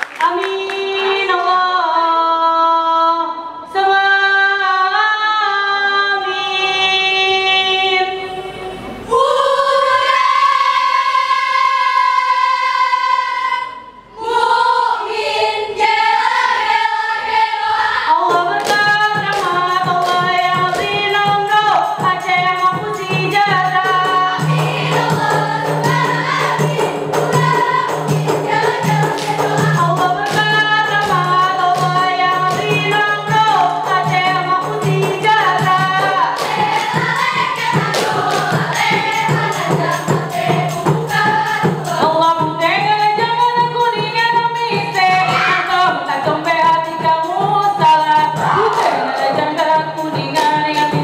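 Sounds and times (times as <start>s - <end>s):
fast claps and slaps: 0.0s - 1.1s
women singing in unison: 0.2s - 51.0s.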